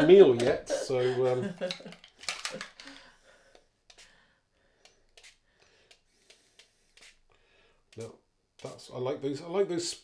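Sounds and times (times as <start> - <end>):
spray bottle hiss: 5.1 - 7.3, 7.9 - 8.9.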